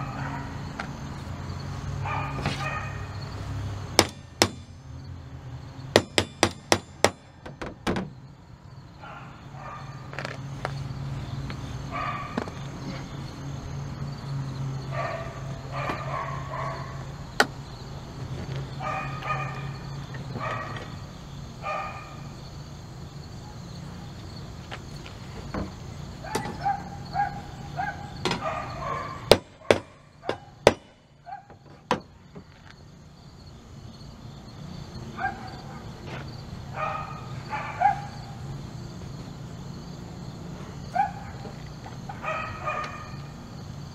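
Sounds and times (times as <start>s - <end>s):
dog barking: 0.0s - 0.6s, 2.0s - 3.2s, 9.0s - 10.1s, 11.9s - 12.5s, 14.9s - 17.0s, 18.8s - 19.8s, 20.4s - 20.8s, 21.6s - 22.2s, 26.2s - 30.6s, 31.2s - 31.6s, 35.2s - 35.9s, 36.7s - 38.4s, 40.9s - 41.5s, 42.2s - 43.3s
hammer knocking on metal: 4.0s - 4.8s, 5.9s - 8.1s.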